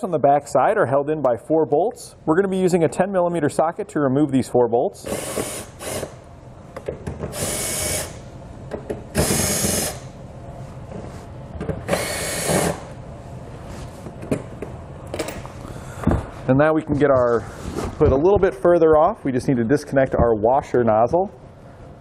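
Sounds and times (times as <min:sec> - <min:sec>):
cordless drill spinning: 0:05.1 - 0:06.1, 0:07.4 - 0:08.2, 0:09.2 - 0:10.0, 0:11.9 - 0:12.8.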